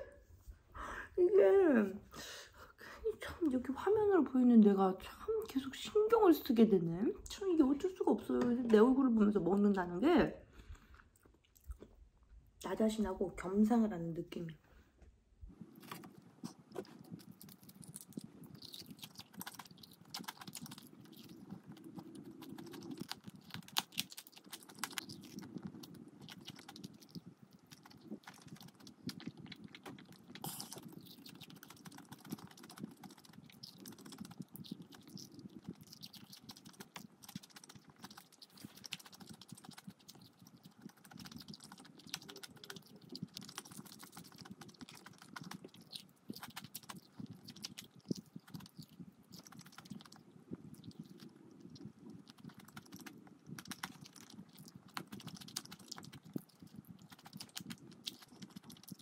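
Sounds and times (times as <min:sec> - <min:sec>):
chewing crispy food: 0:10.7 - 0:12.1, 0:15.5 - 0:59.0.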